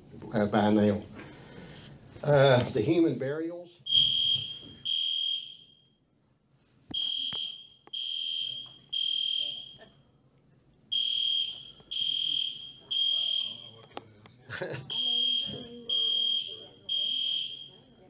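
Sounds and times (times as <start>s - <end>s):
fire alarm beeping: 3.8s - 6.0s, 6.9s - 10.1s, 10.9s - 13.9s, 14.9s - 18.0s.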